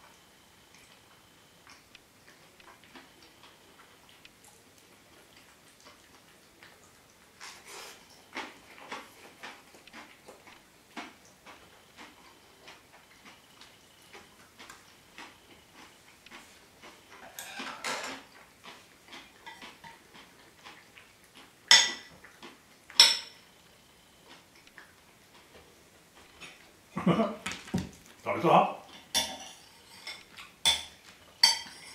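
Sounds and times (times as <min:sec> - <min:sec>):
chopsticks and spoon on plate: 0:11.0 - 0:22.1, 0:22.9 - 0:23.5, 0:28.9 - 0:31.9.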